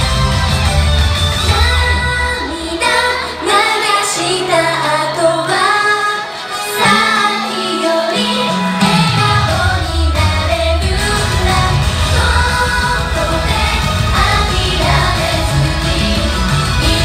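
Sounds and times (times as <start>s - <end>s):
deep bass: 0.0s - 2.5s, 8.9s - 17.0s
pop backing track: 0.0s - 17.0s
female group singing in unison: 1.5s - 17.0s.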